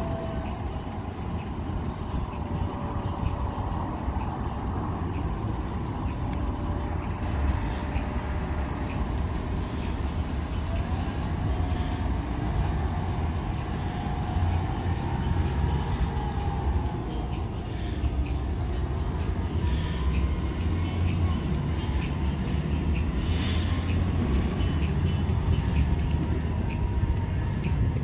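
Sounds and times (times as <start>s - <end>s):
bus engine rumble: 0.0s - 28.0s.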